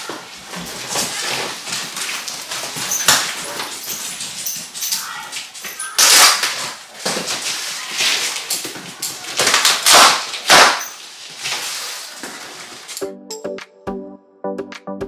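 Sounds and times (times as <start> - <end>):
packing tape and cardboard ripping: 0.0 - 4.4, 5.3 - 13.0
background music with clicking beat: 13.0 - 15.0.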